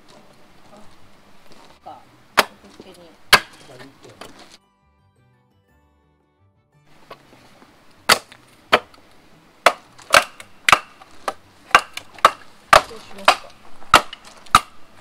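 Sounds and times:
sharp wooden knocks: 3.3s - 4.4s, 8.1s - 8.9s, 9.6s - 14.8s.

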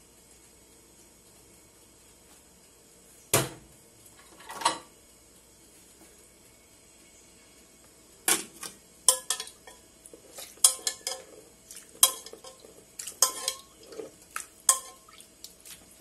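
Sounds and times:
metal spoon clinking against pot: 9.1s - 9.8s, 10.6s - 11.4s, 12.0s - 14.1s, 14.7s - 15.1s.

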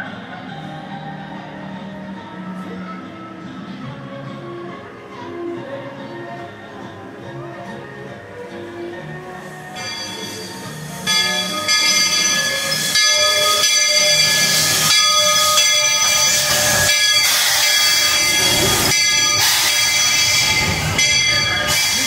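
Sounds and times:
steam locomotive hissing: 8.7s - 22.0s.

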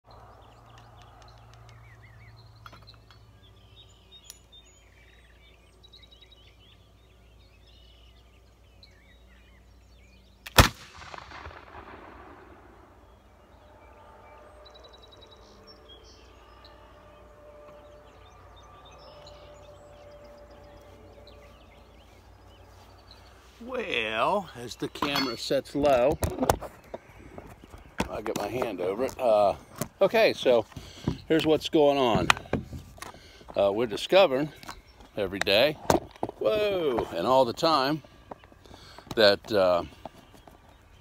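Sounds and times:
birds chirping: 0.0s - 41.0s
pistol shot with echo: 10.5s - 13.2s.

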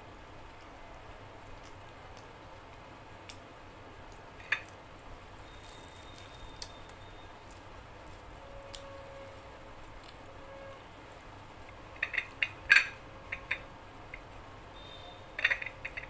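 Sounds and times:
fingers tearing bread: 5.4s - 10.5s.

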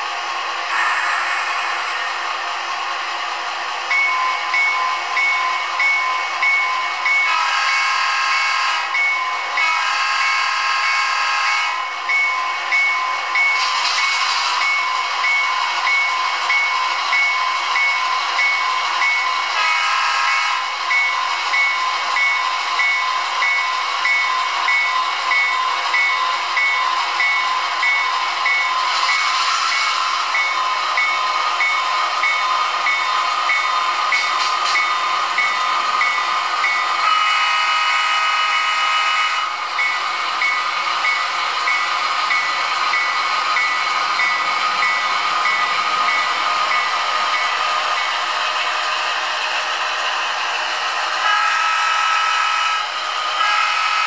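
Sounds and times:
model locomotive engine hum: 0.0s - 54.0s
train horn blast: 0.7s - 1.7s, 7.3s - 9.0s, 9.6s - 11.8s, 19.6s - 20.7s, 37.0s - 39.5s, 51.2s - 54.0s.

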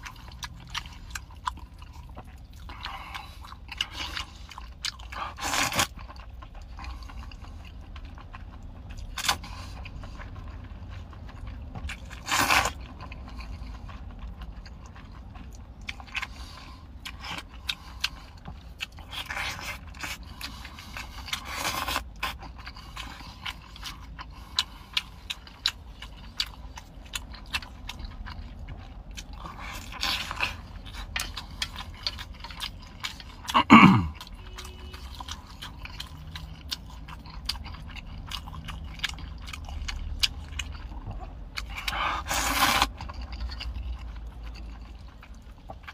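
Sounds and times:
wet chewing: 0.0s - 45.9s.

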